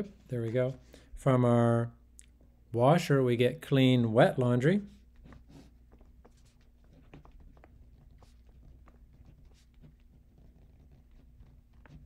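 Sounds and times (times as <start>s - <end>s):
marker pen writing on paper: 4.8s - 12.0s.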